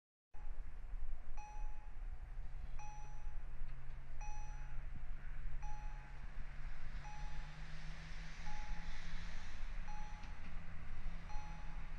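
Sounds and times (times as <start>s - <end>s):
low steady drone: 0.4s - 11.9s
rushing sound of approaching railbus: 0.4s - 11.9s
crossing bell dinging: 1.4s - 2.0s, 2.8s - 3.5s, 4.2s - 4.9s, 5.6s - 6.3s, 7.0s - 7.6s, 8.4s - 9.0s, 9.8s - 10.5s, 11.2s - 11.9s.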